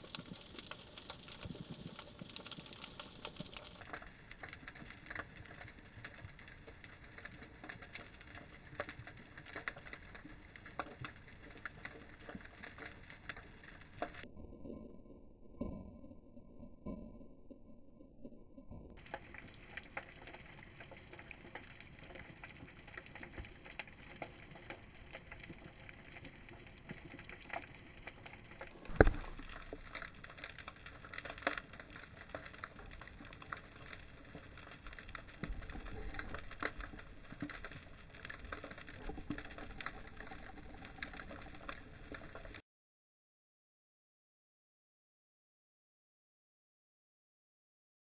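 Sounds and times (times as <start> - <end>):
underwater crackle of clicks: 0.0 - 14.2, 18.7 - 42.6.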